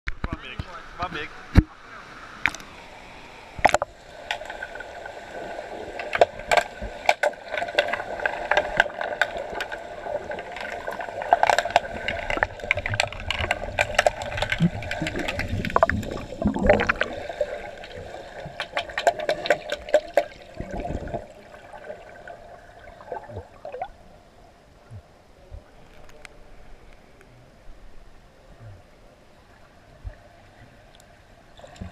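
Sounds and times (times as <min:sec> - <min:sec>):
gurgling water: 0:01.3 - 0:24.1, 0:28.5 - 0:31.9
sticks clicking underwater: 0:10.4 - 0:17.1, 0:17.8 - 0:21.1.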